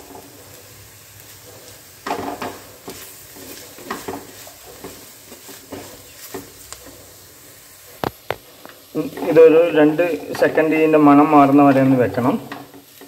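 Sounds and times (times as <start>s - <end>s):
light sizzle: 0.0s - 13.0s
wooden spatula scraping pot: 1.2s - 7.3s.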